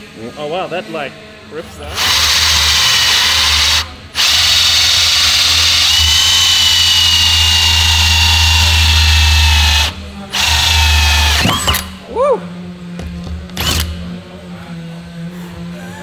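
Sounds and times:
cordless drill whining through wood: 1.9s - 11.9s.

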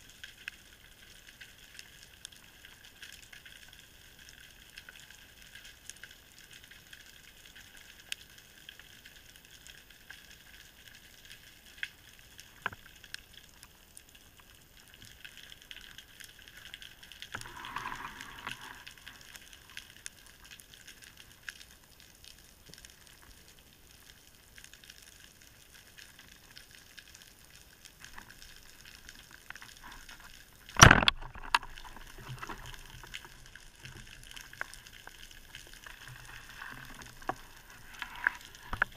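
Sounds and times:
faint underwater crackle: 0.0s - 38.9s
small clicks: 22.6s - 38.9s
speargun crack underwater: 28.2s - 33.6s.

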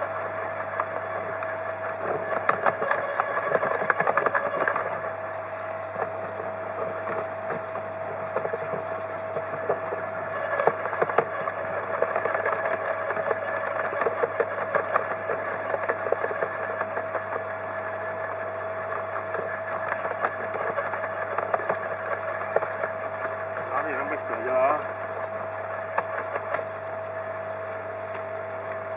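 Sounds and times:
garden shredder whining: 0.0s - 28.9s
branches crackling and snapping: 0.2s - 28.9s.

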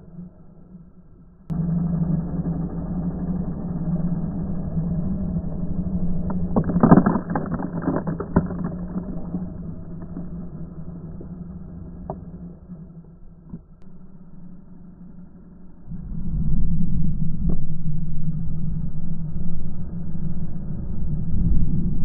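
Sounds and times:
scooter engine drone: 0.0s - 22.0s
grit clattering against camera: 6.3s - 10.4s.

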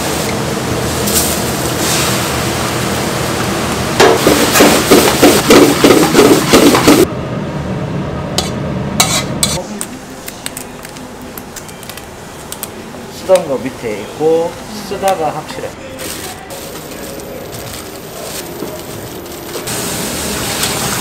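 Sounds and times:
food sizzling: 0.0s - 7.1s, 16.5s - 21.0s
wok scraped into metal tray: 8.4s - 9.6s.

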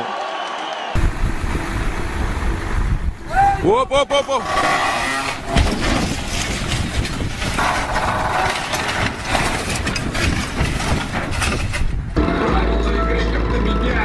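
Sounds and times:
steady rumbling noise: 1.0s - 14.0s
heavy crash: 4.5s - 12.6s.

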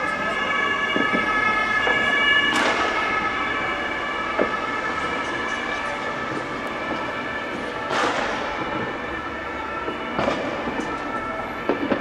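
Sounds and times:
two-tone siren: 0.0s - 12.0s
firecracker bang: 2.4s - 3.1s, 7.8s - 8.9s, 10.1s - 11.0s, 11.6s - 12.0s.

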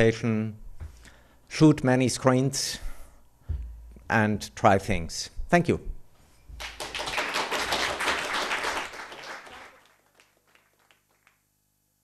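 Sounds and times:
audience applauding: 6.6s - 11.4s.

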